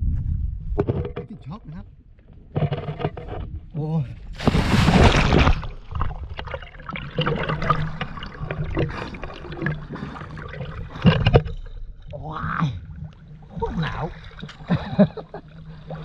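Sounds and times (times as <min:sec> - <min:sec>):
person jumping into water splash: 0:04.4 - 0:06.6
water splashing from swimming: 0:04.4 - 0:11.8.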